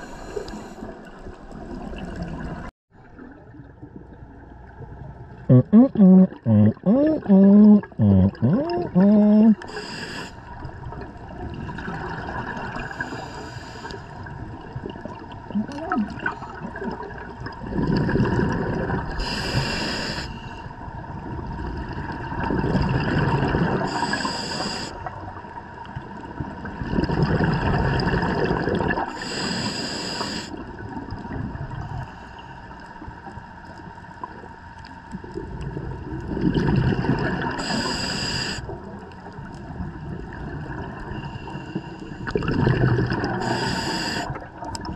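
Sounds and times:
scuba regulator breathing bubbles: 5.5 - 10.7, 16.1 - 20.6, 22.4 - 25.1, 26.8 - 30.8, 36.3 - 38.8, 40.7 - 44.6
regulator hiss: 9.6 - 10.4, 19.2 - 20.6, 23.9 - 25.0, 29.2 - 30.6, 37.6 - 38.7, 43.4 - 44.4.

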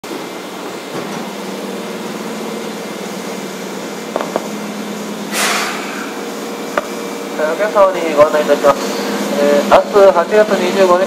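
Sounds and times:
train equipment humming: 0.0 - 11.0
released air hiss: 5.3 - 6.2.

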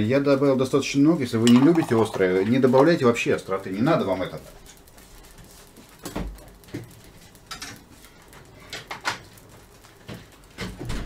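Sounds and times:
kitchen knocks and clicks: 1.4 - 2.6.

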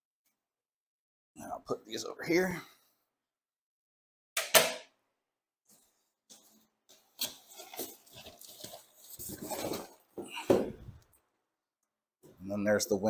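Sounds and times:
cardboard packaging rustling: 6.9 - 11.0.

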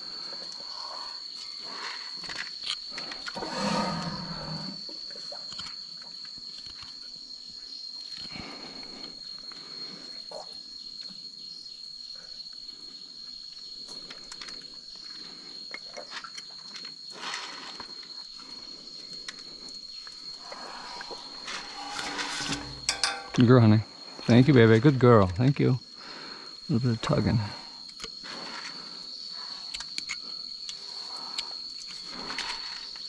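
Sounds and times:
elephant low sound: 20.4 - 23.5
high-pitched whine: 20.6 - 23.5.

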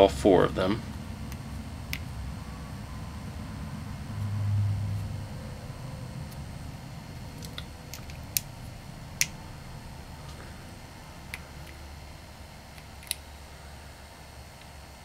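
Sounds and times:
brief low hum: 0.7 - 12.7.

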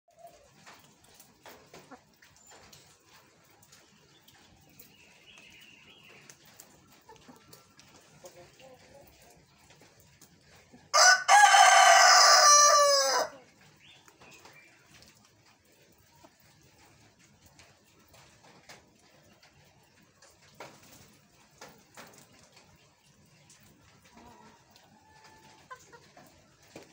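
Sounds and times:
rooster crowing: 11.0 - 13.4.

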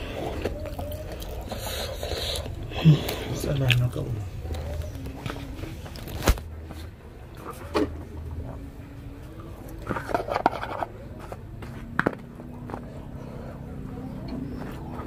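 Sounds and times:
chewing: 0.0 - 6.1, 12.6 - 15.0.

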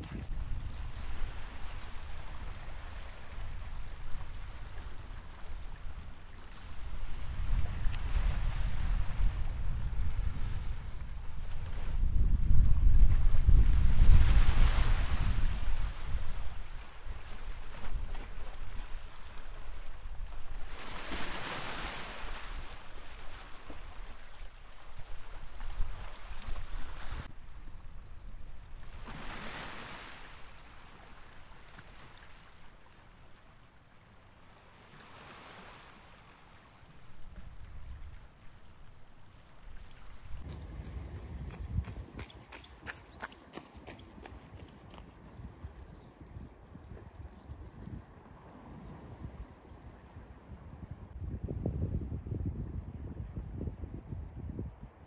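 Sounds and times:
wind buffeting microphone: 0.0 - 29.5, 37.0 - 55.0
sea surf: 13.4 - 27.4, 28.8 - 33.5.

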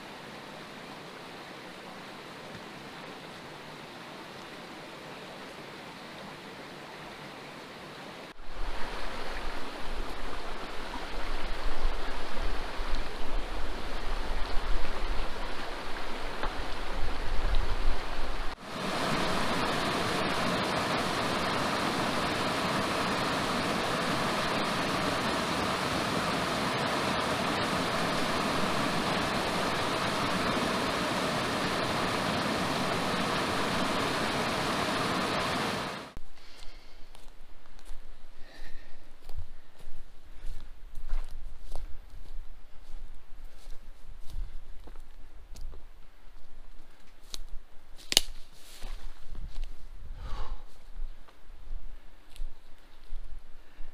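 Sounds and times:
stream rushing over rocks: 8.4 - 36.2.

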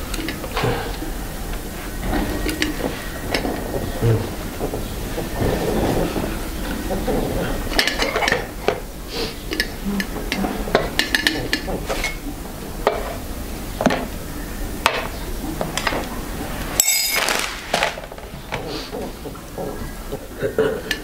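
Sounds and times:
china cups clinking: 16.7 - 17.6.

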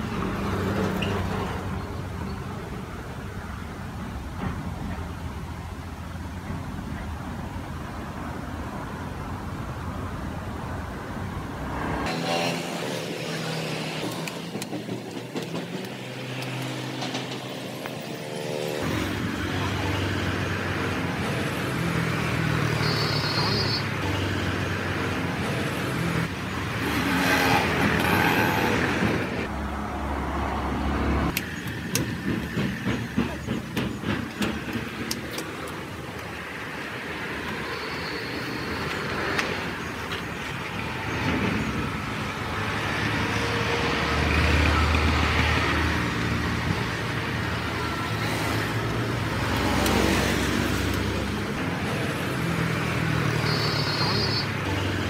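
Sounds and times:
road traffic passing: 0.0 - 55.0.

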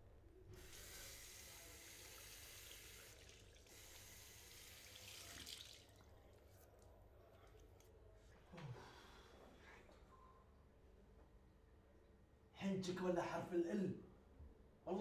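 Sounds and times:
water running from sink tap: 0.6 - 6.0.

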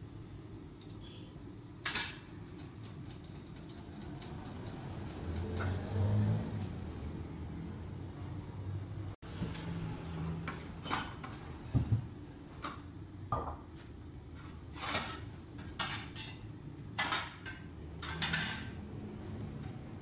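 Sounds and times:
metal tools clinking and scraping: 14.8 - 18.8.

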